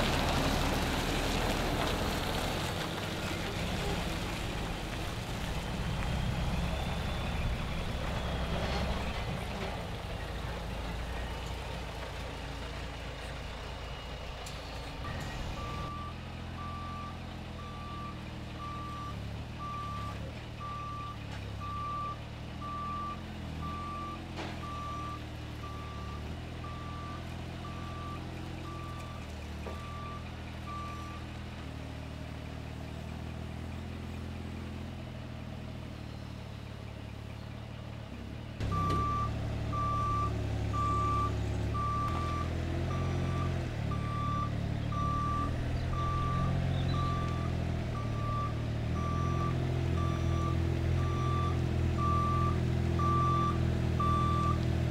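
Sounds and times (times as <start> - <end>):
forklift engine running: 0.0 - 54.9
reversing alarm beeping: 38.6 - 54.6.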